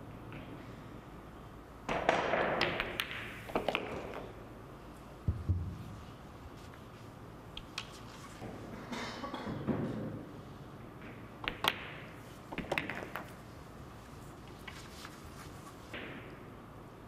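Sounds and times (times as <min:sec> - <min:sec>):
pool balls clicking: 0:01.9 - 0:04.4, 0:11.0 - 0:13.5.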